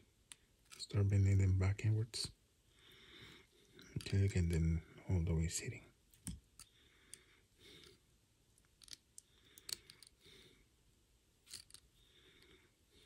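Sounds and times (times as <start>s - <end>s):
pliers clicking on metal tabs: 8.6s - 9.0s, 11.5s - 11.8s.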